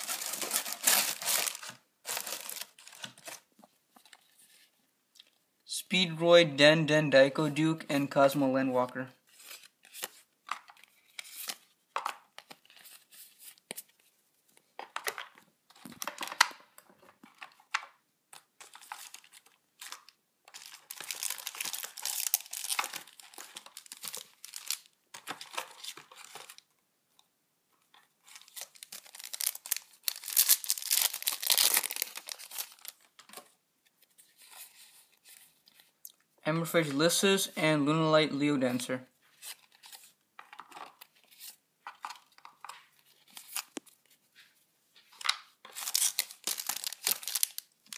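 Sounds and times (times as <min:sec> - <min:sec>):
foil wrapper crinkling and tearing: 0:00.0 - 0:03.4, 0:18.8 - 0:25.0, 0:28.4 - 0:33.1, 0:45.7 - 0:47.9.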